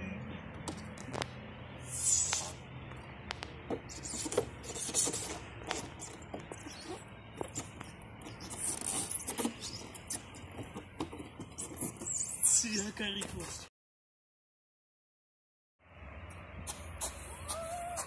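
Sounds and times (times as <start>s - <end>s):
hissy swishes: 1.8s - 2.6s.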